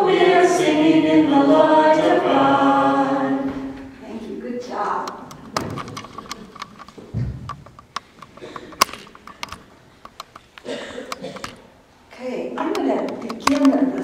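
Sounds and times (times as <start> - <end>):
congregation singing a cappella: 0.0 - 4.2
clicks and knocks of handling: 5.0 - 11.7, 12.7 - 14.0
low thud: 7.1 - 7.6.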